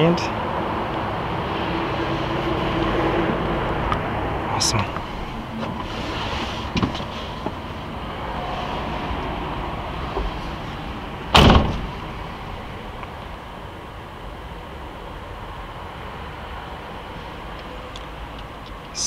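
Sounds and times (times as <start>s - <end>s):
van door slamming: 5.2s - 7.6s, 11.2s - 12.2s.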